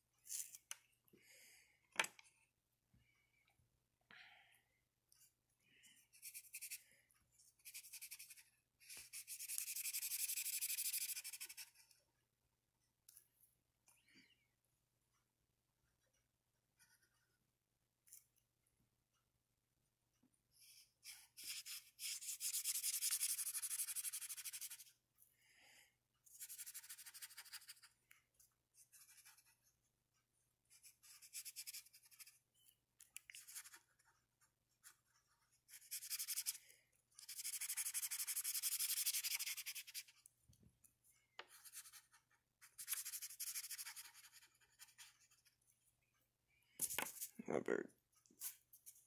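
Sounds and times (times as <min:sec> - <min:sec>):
marker scribbling on paper: 0:06.2 - 0:06.9, 0:07.6 - 0:11.8, 0:21.0 - 0:24.9, 0:26.3 - 0:27.9, 0:28.8 - 0:29.6, 0:30.7 - 0:32.4, 0:33.3 - 0:36.6, 0:37.2 - 0:40.2, 0:41.4 - 0:45.6, 0:46.8 - 0:47.4.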